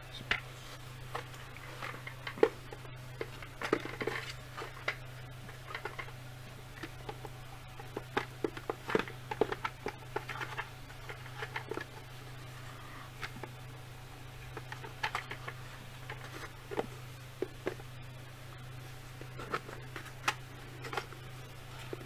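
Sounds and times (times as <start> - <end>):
steady low hum: 0.0 - 22.0
plastic helmet clicks and rubbing: 1.1 - 12.1, 14.5 - 17.9, 19.2 - 22.0.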